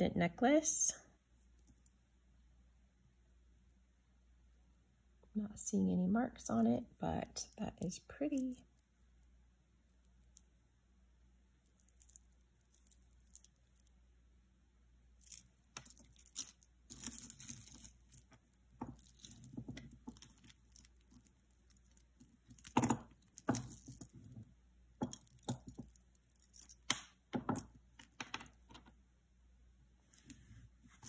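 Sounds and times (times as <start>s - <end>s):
jewelry chains clinking: 11.6s - 13.9s, 15.2s - 28.6s
rustling: 15.2s - 26.8s, 30.0s - 31.0s.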